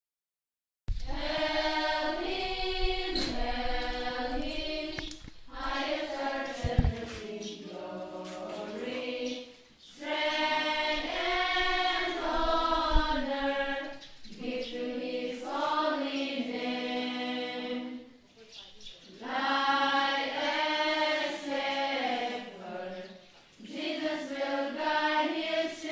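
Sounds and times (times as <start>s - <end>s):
children singing together: 1.1s - 18.1s, 19.2s - 25.9s
low thumps: 6.4s - 7.3s, 11.2s - 13.6s.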